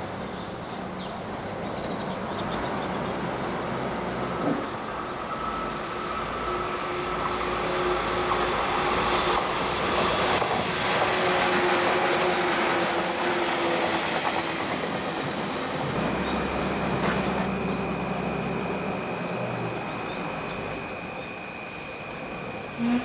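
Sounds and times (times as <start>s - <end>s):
train wheels on rails: 2.2s - 17.5s
train motor whine: 3.4s - 23.0s.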